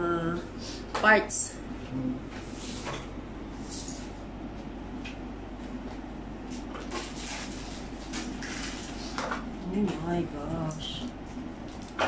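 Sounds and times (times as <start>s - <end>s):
plastic wrapping rustling: 6.5s - 9.2s.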